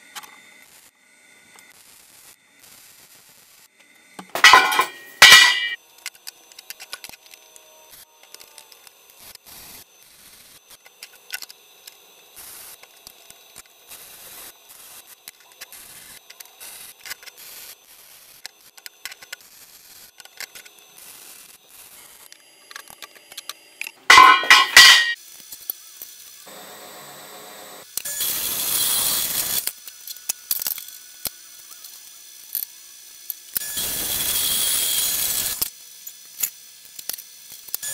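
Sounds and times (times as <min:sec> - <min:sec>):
loud metallic clatter with ringing: 0:04.3 - 0:05.8, 0:24.1 - 0:25.2
metal scraping and tapping on metal: 0:04.3 - 0:05.8, 0:24.1 - 0:25.2.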